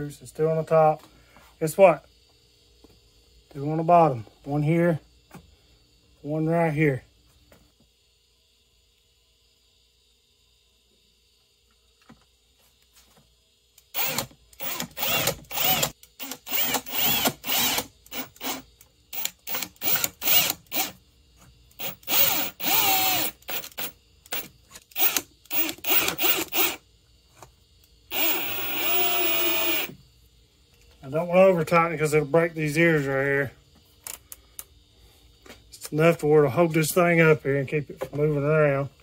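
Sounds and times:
cordless drill driving screws: 0:13.9 - 0:18.6, 0:19.2 - 0:21.0, 0:21.8 - 0:26.8, 0:28.1 - 0:29.9.

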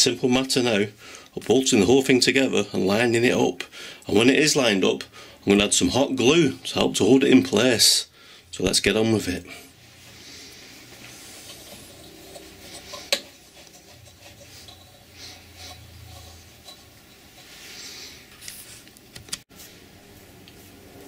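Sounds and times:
clamp rubbing against wood: 0:10.8 - 0:18.5.

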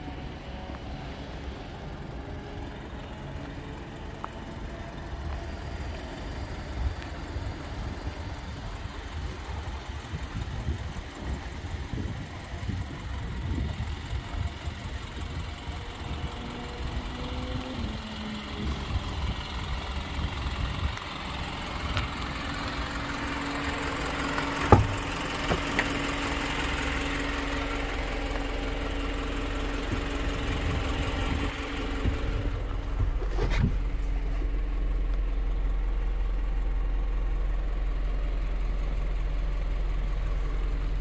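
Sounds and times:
diesel engine idling: 0:00.0 - 0:41.0
door thud: 0:24.7 - 0:25.7.

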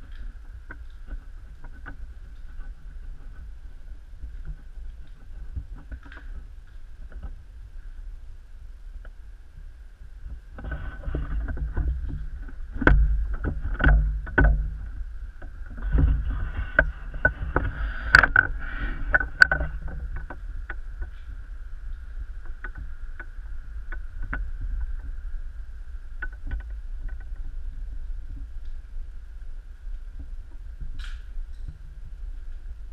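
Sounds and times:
faint steady whine: 0:00.0 - 0:32.9
camera handling rumble: 0:10.4 - 0:25.1.

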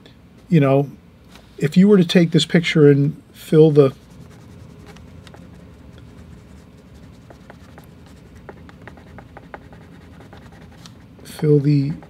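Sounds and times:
marker scratching on paper: 0:03.9 - 0:12.0.

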